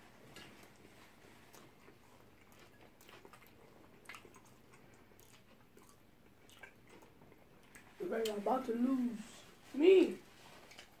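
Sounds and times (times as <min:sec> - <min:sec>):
faint chewing: 0:00.0 - 0:11.0
mouth clicks and smacks: 0:01.5 - 0:08.4.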